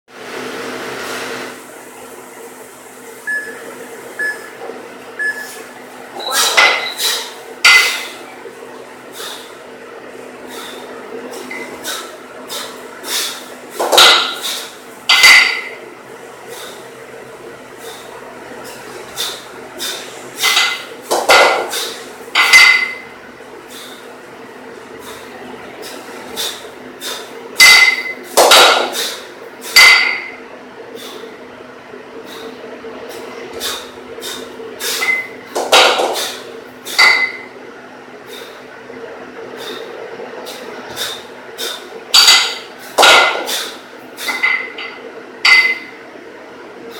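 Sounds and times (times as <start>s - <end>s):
kettlebells clanking: 6.3s - 8.1s, 20.4s - 23.0s, 27.6s - 29.0s, 34.9s - 37.4s, 42.2s - 43.7s, 44.3s - 45.9s
puffs of breath: 9.1s - 9.6s, 10.5s - 10.9s, 11.8s - 13.5s, 23.7s - 24.0s, 38.2s - 38.7s, 39.6s - 41.8s.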